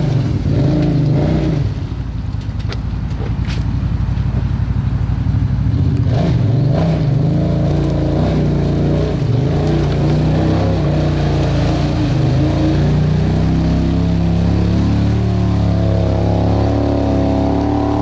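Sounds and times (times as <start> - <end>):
engine revving under load: 0.0 - 1.9, 5.6 - 18.0.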